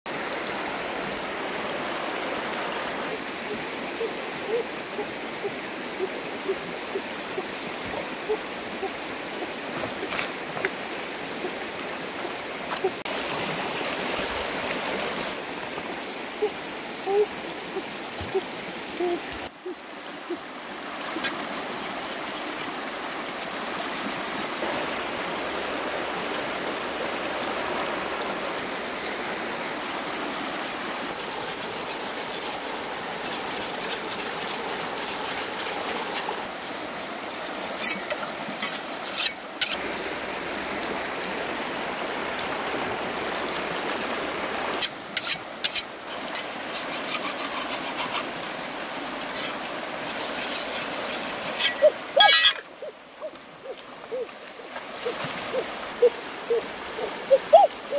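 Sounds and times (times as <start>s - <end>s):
river rushing over rocks: 0.1s - 57.9s
knife sharpened on stone: 37.8s - 39.8s, 45.2s - 45.9s, 46.7s - 48.3s, 50.2s - 52.6s.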